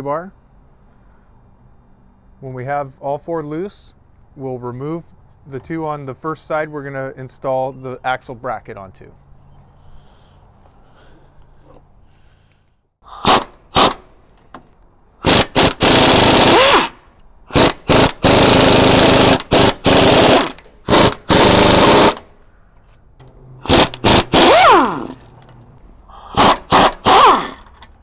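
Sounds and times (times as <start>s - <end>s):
pneumatic impact wrench rattling: 13.1s - 14.5s, 15.2s - 22.3s, 23.2s - 28.0s.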